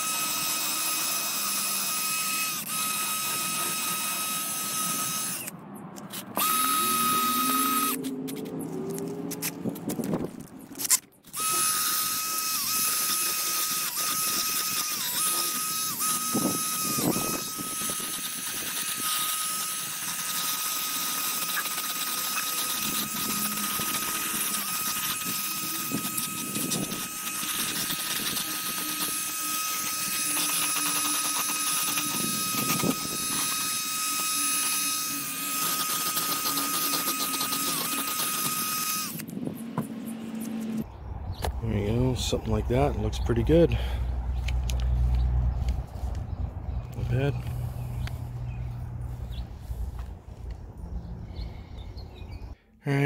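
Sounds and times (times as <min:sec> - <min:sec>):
power tool whining: 0:00.0 - 0:40.9.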